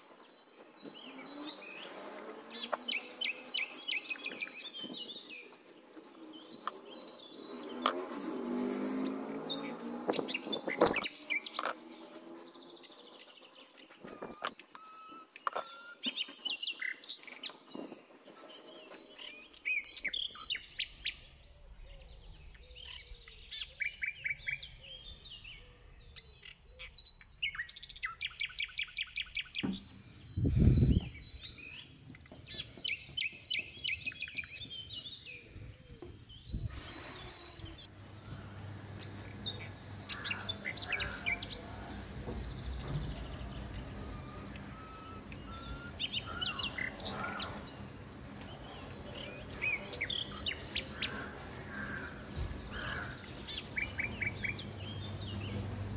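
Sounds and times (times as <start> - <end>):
small birds chirping: 0.0 - 55.9
wind rumble on microphone: 30.2 - 31.4, 35.5 - 37.7.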